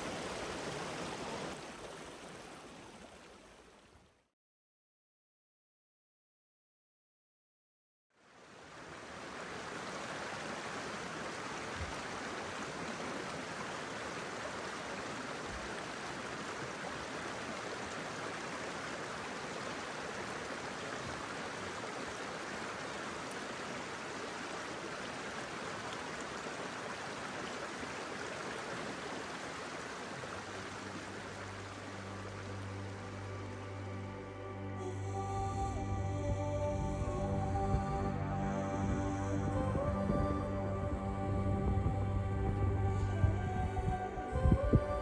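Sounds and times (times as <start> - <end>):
stream water rushing: 0.0 - 4.1, 8.2 - 45.0
soft music sustained tones: 30.2 - 45.0.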